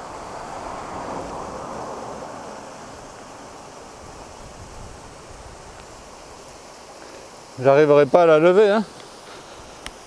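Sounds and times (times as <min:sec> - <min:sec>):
river water rushing: 0:00.0 - 0:10.0.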